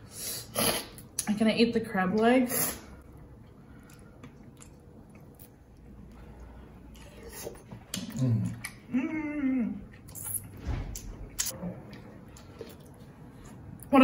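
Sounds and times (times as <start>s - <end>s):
quiet chewing: 3.1s - 10.5s, 11.4s - 13.9s.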